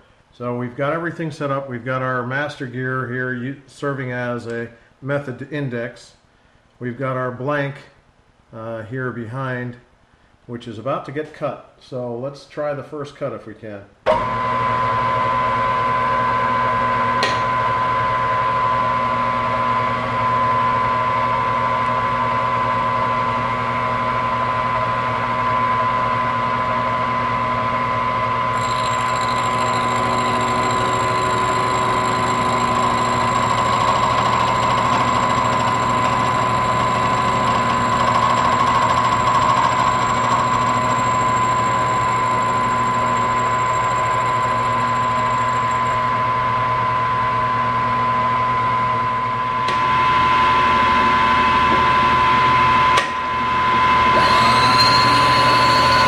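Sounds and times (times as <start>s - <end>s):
sharp click: 17.2s - 17.5s
milling machine whining: 27.5s - 56.0s
high thin whine: 49.7s - 56.0s.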